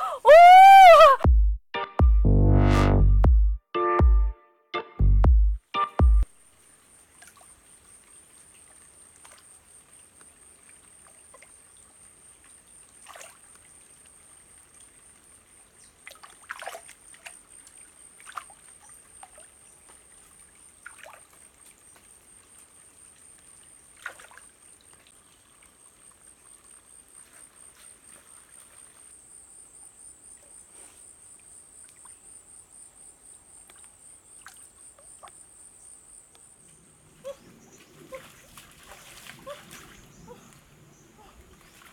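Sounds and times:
water splashing and trickling: 0:06.2 - 0:29.8, 0:33.6 - 0:35.6, 0:36.7 - 0:41.9.

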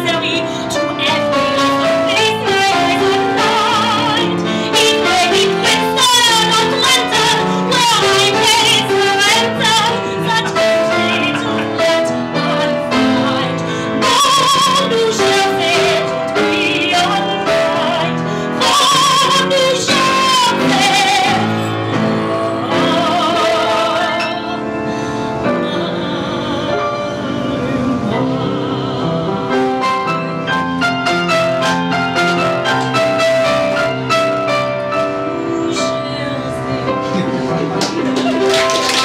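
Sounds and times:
woman singing operatically: 0:00.0 - 0:24.7, 0:25.4 - 0:30.4, 0:35.2 - 0:37.0
grand piano: 0:00.0 - 0:39.0.

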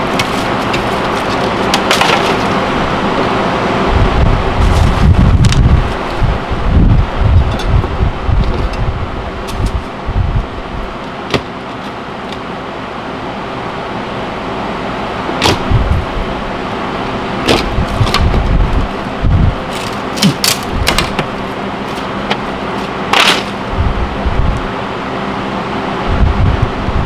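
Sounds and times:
wood cracking and squeaking: 0:00.0 - 0:02.6, 0:19.6 - 0:23.6
steady hum: 0:00.0 - 0:27.0.

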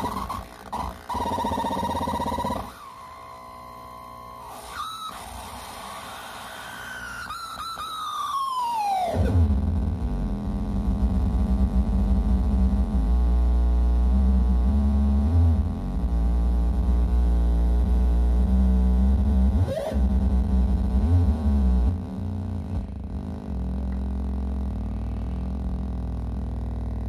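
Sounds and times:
low buzzing feedback drone: 0:09.1 - 0:27.0.

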